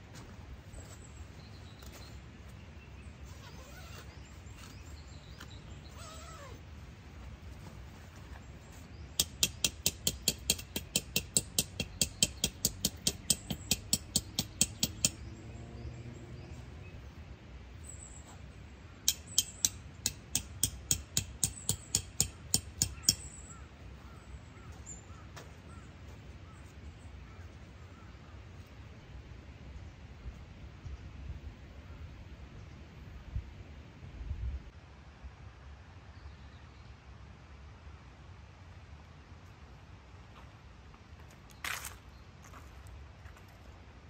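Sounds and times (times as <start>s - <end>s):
hammer striking tent pegs: 9.2s - 15.3s, 19.1s - 23.4s.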